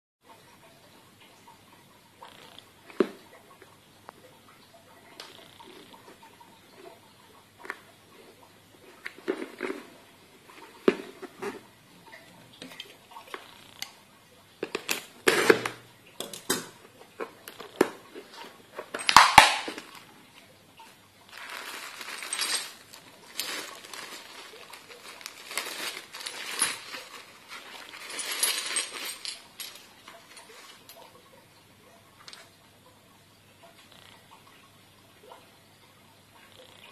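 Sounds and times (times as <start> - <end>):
plastic bags rustling: 21.3 - 31.0.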